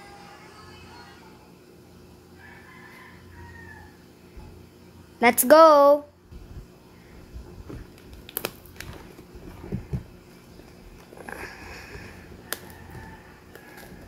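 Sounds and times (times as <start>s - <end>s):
dull thumps: 9.0s - 10.2s.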